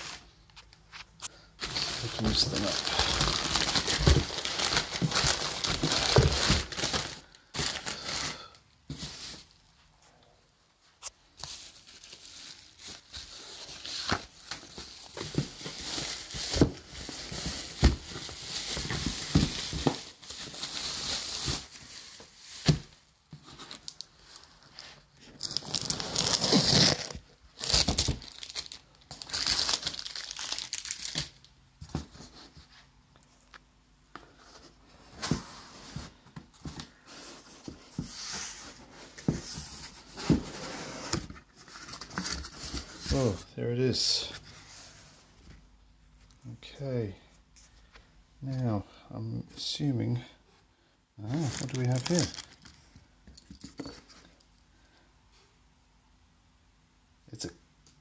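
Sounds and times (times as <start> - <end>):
bubble wrap crinkling: 1.6 - 8.5, 11.4 - 22.9, 23.6 - 31.5, 51.2 - 52.8.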